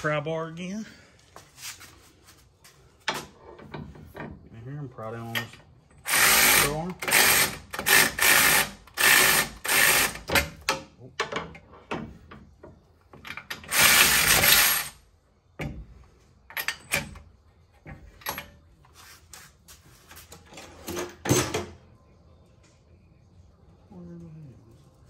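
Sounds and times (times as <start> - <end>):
electric ratchet running: 6.0 - 10.4, 13.6 - 15.0.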